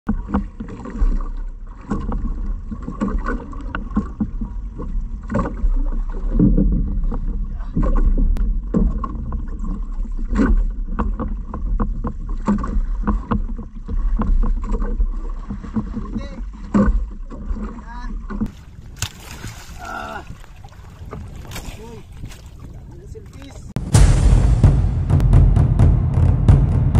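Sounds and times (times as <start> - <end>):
water sloshing around a boat: 0.0 - 23.8
steady low rumble: 23.7 - 26.9.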